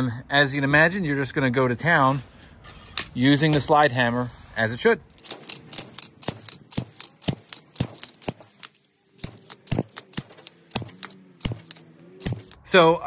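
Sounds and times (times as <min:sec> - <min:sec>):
slide hammer metallic clanks: 0:05.1 - 0:12.6.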